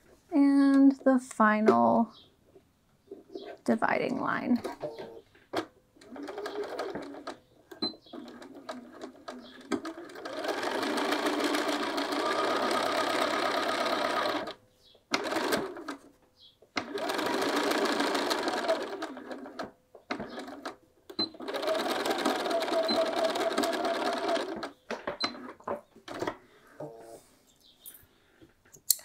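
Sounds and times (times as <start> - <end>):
sewing machine stitching: 6.0 - 16.1, 16.8 - 26.3.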